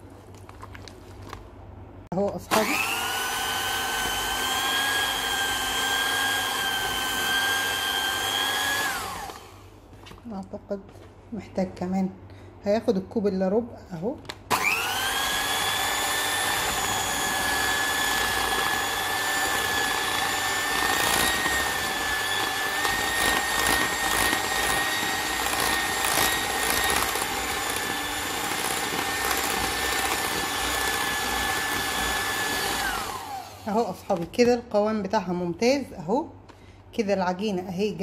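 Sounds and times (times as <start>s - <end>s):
electric hand mixer whining: 2.5s - 9.7s, 14.5s - 33.9s.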